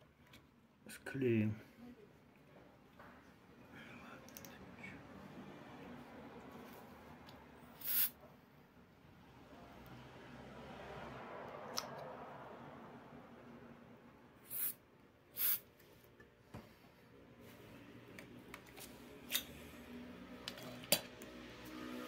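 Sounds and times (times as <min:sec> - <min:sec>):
aerosol spray can hissing: 0:07.8 - 0:08.1, 0:14.4 - 0:14.8, 0:15.4 - 0:15.6.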